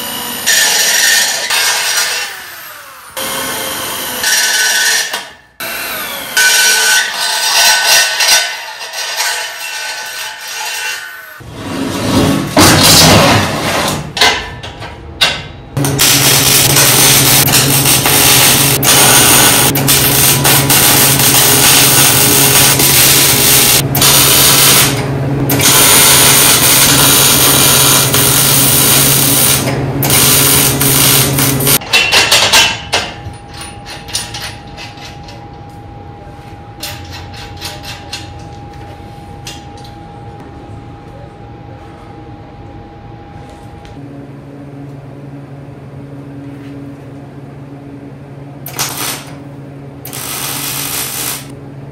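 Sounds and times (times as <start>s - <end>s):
arc welder buzzing: 0.0s - 11.5s, 15.8s - 31.8s, 48.6s - 51.6s.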